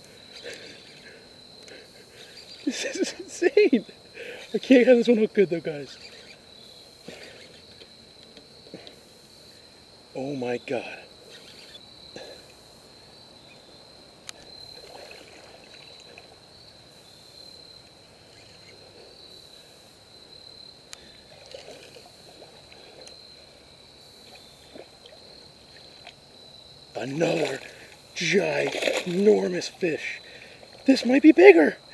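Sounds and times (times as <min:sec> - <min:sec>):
crickets chirping: 0:00.0 - 0:31.9
water splashing: 0:14.5 - 0:16.4, 0:21.2 - 0:23.1, 0:27.0 - 0:31.3.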